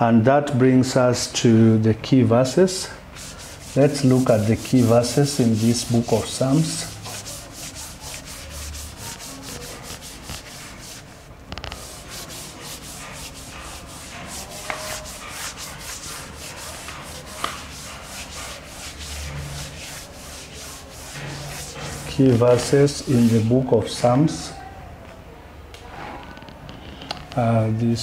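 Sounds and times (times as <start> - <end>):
eraser rubbing on chalkboard: 2.4 - 23.7.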